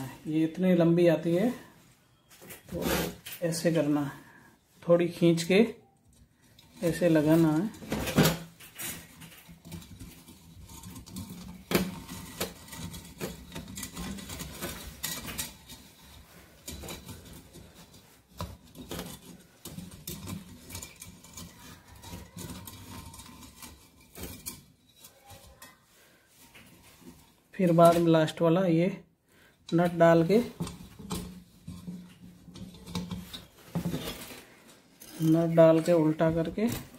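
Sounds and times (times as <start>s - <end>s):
hands clicking and scraping wire: 6.0s - 28.2s, 29.6s - 36.9s.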